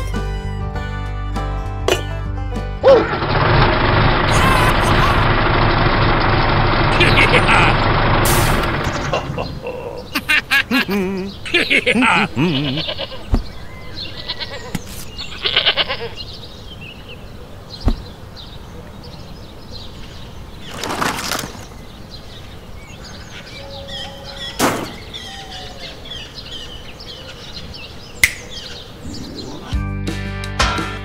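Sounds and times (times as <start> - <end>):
animal bleating: 12.4 - 16.2
cardboard scraping rustle: 20.6 - 21.8.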